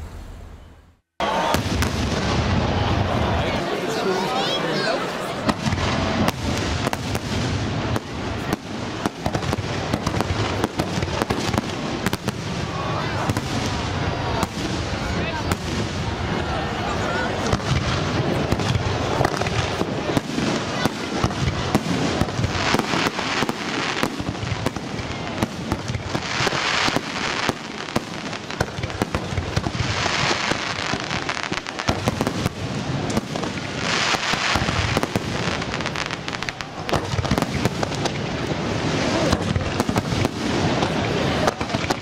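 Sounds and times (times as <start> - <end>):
fireworks bangs: 0.0 - 42.0
crackling hiss: 17.4 - 42.0.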